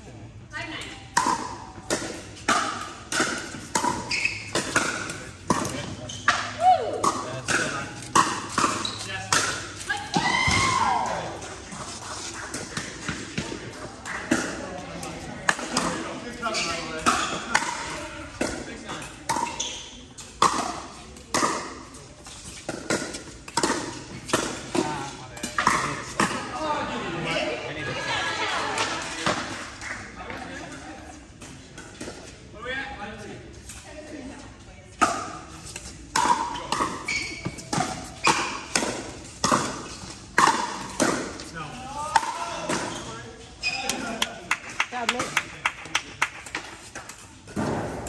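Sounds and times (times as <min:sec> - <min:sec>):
paddle hitting ball echoing: 0:01.2 - 0:11.2
shoe squeak: 0:04.0 - 0:04.8, 0:06.0 - 0:06.4, 0:08.6 - 0:09.3, 0:16.4 - 0:17.4, 0:19.5 - 0:20.0, 0:36.5 - 0:38.6, 0:42.9 - 0:44.1.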